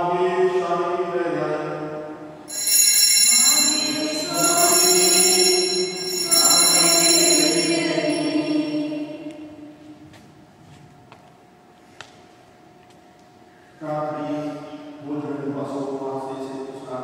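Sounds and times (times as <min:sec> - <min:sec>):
altar bells ringing: 0:02.5 - 0:09.2
chant-like singing: 0:03.8 - 0:09.6.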